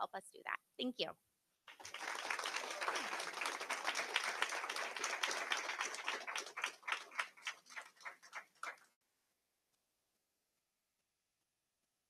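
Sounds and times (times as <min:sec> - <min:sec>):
audience applauding: 0:01.7 - 0:09.0.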